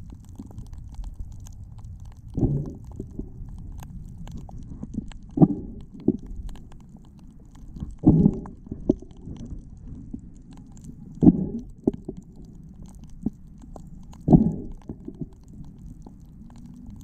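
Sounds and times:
faint clicks: 0.0s - 17.0s
muffled underwater rumble: 0.0s - 17.0s.

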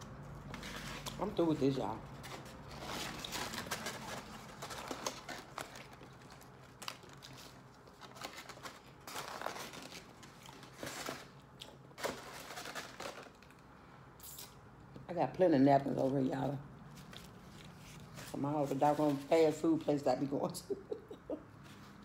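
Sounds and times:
styrofoam box crinkling and creaking: 0.4s - 11.4s, 12.0s - 13.6s.

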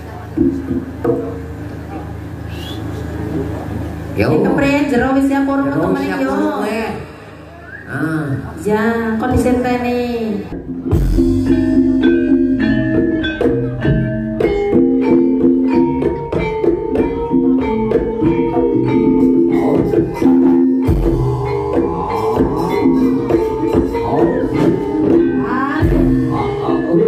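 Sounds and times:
gamelan keyed percussion: 8.6s - 27.0s
drumming: 9.2s - 27.0s.

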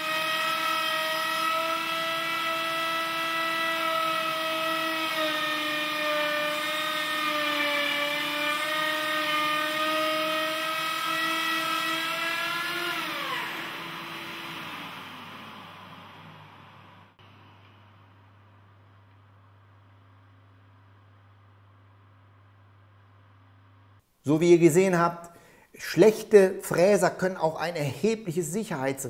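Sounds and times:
router motor whining: 0.0s - 17.7s.

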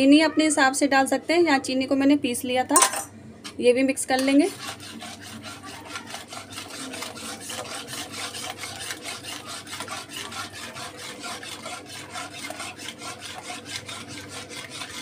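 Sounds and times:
metal spoon scraping metal pot: 4.1s - 15.0s.

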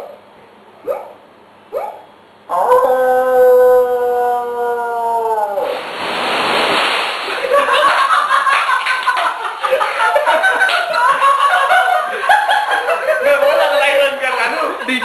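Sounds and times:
audience laughing: 7.3s - 15.0s.

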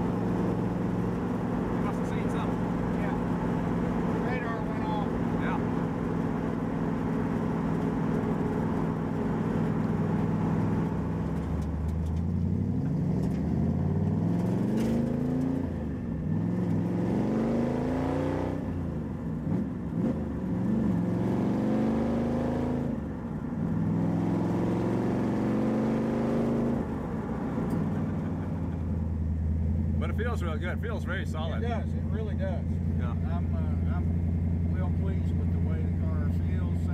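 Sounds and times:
car engine revving through gears: 0.0s - 28.9s.

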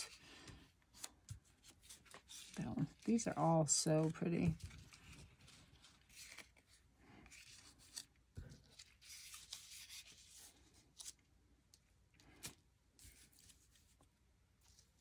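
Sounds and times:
paper rustling on tabletop: 0.0s - 11.2s.

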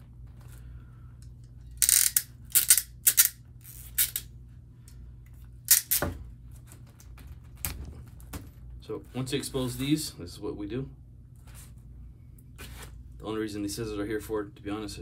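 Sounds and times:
crimp tool clicking: 1.8s - 3.4s.

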